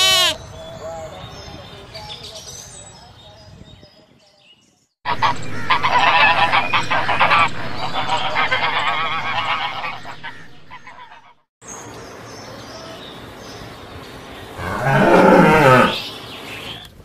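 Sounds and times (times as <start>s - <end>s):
geese honking: 5.1s - 11.4s.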